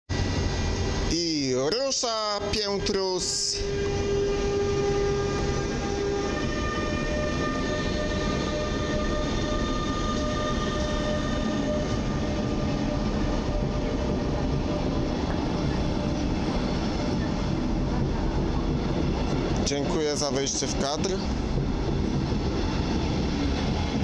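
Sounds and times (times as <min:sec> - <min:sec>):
wheels rumbling on rail: 0:00.1 - 0:24.0
locomotive electric whine: 0:00.2 - 0:18.1.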